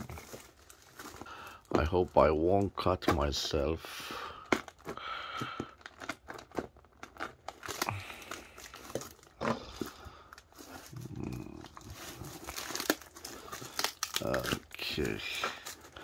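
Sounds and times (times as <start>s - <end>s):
plastic wrapping crinkling: 0.0s - 3.5s, 4.3s - 16.0s.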